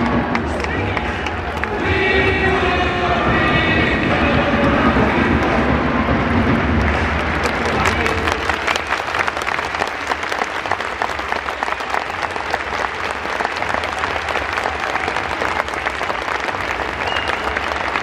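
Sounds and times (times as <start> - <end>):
hands clapping close by: 0.0 - 1.8, 6.6 - 18.0
stadium crowd applauding: 0.0 - 18.0.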